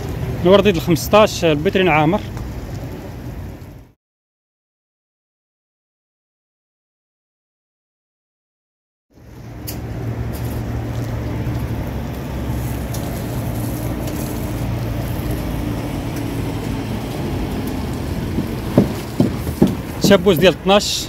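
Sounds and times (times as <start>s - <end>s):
outdoor background noise: 0.0s - 4.0s, 9.1s - 21.0s
low motor hum: 9.2s - 20.0s.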